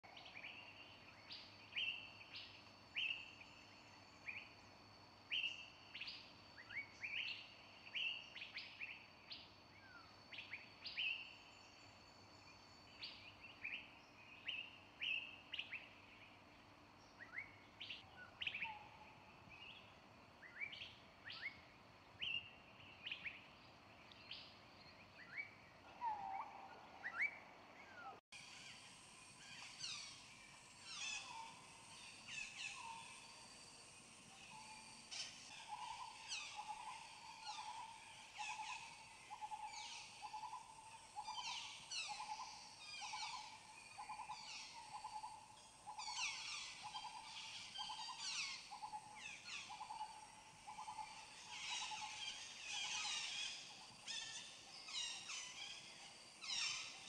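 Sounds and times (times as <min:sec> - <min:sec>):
faint background hiss: 0:00.1 - 0:57.0
small birds chirping: 0:05.3 - 0:57.0.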